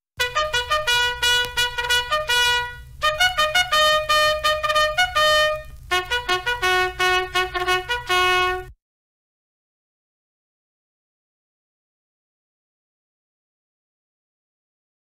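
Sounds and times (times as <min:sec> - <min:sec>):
bugle melody: 0:00.2 - 0:08.7.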